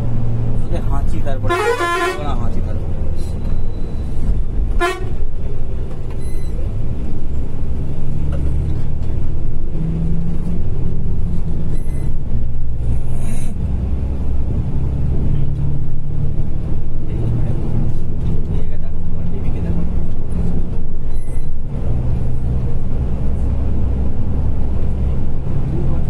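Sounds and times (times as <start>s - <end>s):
diesel engine and road drone: 0.0s - 26.0s
horn toots: 1.5s - 2.3s, 4.8s - 5.2s.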